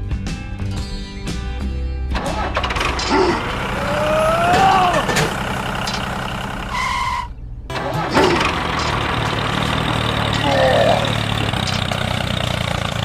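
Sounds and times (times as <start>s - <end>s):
tractor engine running: 2.1s - 13.0s
rising and falling squeal: 2.6s - 10.3s.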